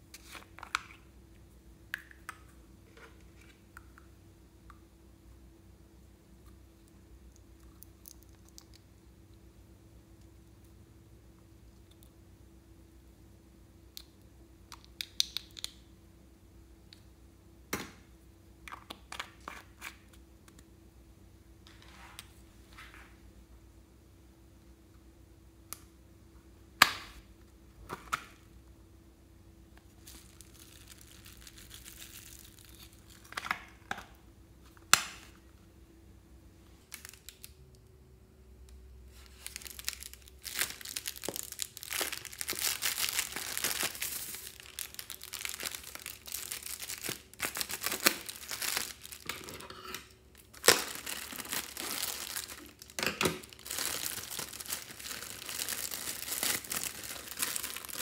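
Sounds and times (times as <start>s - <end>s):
foil balloon crinkling: 39.1s - 49.4s, 50.4s - 58.0s.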